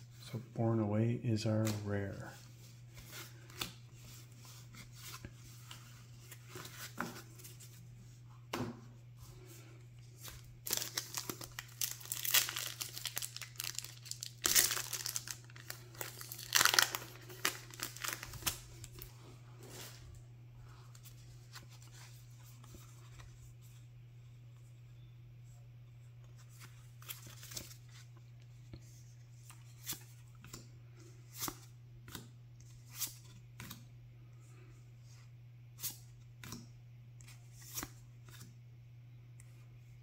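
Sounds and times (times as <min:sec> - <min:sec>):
wrapper crinkling and tearing: 0:10.6 - 0:19.0.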